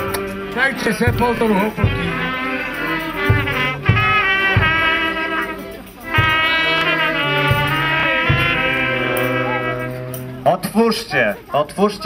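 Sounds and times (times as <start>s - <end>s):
brass band playing: 0.0s - 11.5s.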